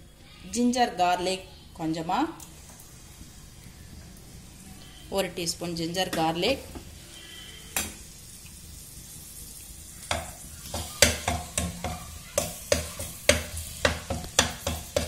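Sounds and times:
paste sizzling in hot oil: 0:06.8 - 0:15.0
tap on pan: 0:07.8 - 0:08.0, 0:10.1 - 0:15.0.

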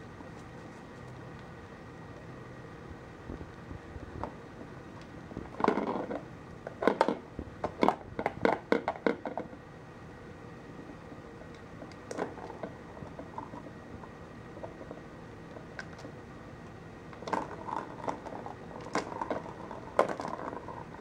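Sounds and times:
plastic ball track clattering: 0:05.6 - 0:06.2, 0:06.8 - 0:09.5, 0:17.2 - 0:21.0.

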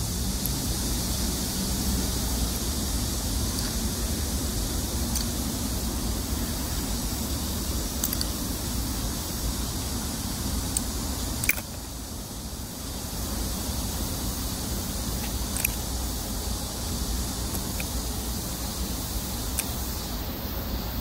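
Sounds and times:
high hiss: 0:00.0 - 0:21.0
faint clicks: 0:05.1 - 0:05.3, 0:08.0 - 0:08.4, 0:10.7 - 0:11.8, 0:15.2 - 0:15.8.

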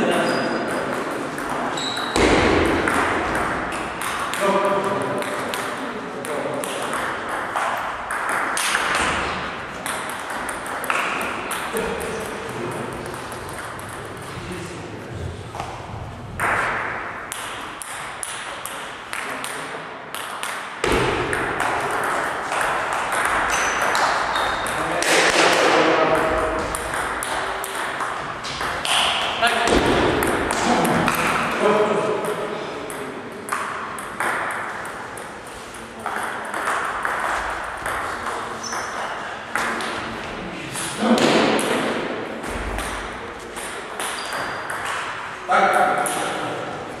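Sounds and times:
table tennis ball bouncing: 0:00.2 - 0:14.3, 0:15.6 - 0:40.1, 0:41.2 - 0:45.3.

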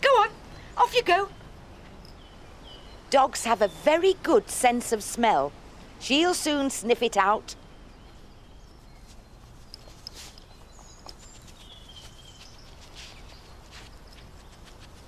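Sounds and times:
light ticks: 0:09.7 - 0:11.2.

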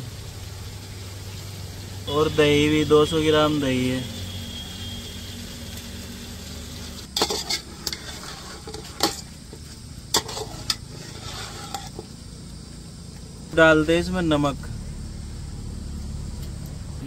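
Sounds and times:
low sizzle: 0:00.0 - 0:17.0
spoon knocking and scraping pot: 0:07.1 - 0:12.1
spoon stirring in pot: 0:07.1 - 0:12.1.

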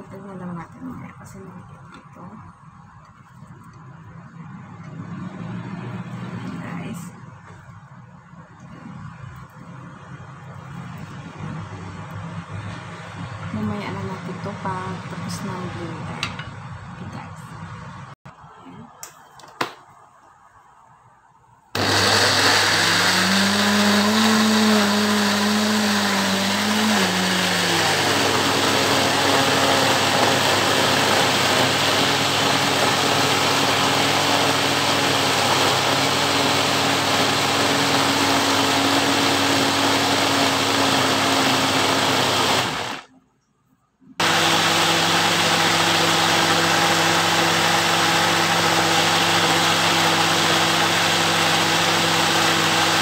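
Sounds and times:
electric blender running: 0:21.8 - 0:43.1, 0:44.2 - 0:53.0.

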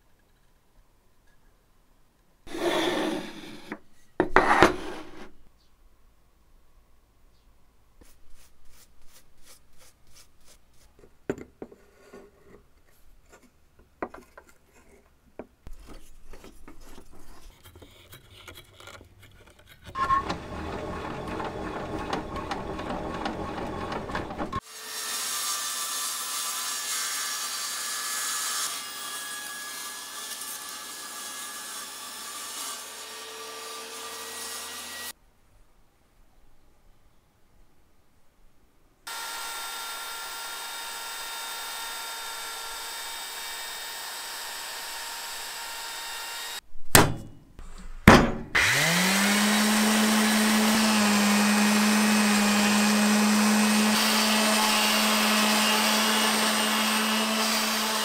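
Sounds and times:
saw blade cutting wood: 0:02.5 - 0:05.4, 0:15.7 - 0:35.1, 0:39.1 - 0:46.6, 0:48.5 - 0:58.0
table saw running: 0:20.0 - 0:29.0, 0:39.1 - 0:46.6, 0:48.6 - 0:58.0.

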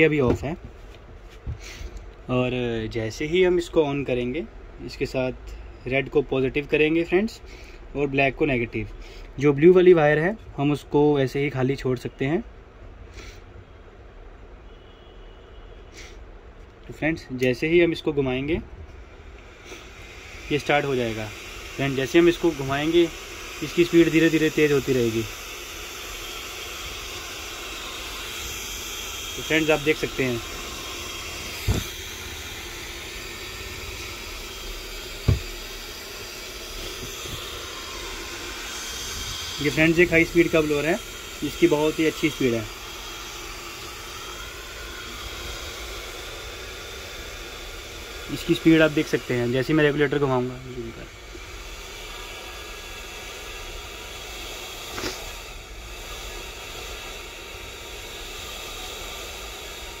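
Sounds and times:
blower fan rushing air: 0:00.0 - 0:13.8, 0:15.9 - 1:00.0
brief tap: 0:35.2 - 0:35.5, 0:54.9 - 0:55.2
sharp knock: 0:35.2 - 0:35.5.

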